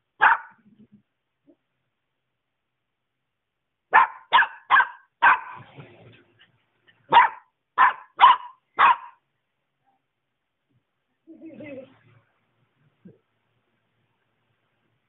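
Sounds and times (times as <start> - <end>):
puppy barking: 0.2 - 0.6, 3.9 - 5.6, 7.1 - 9.2.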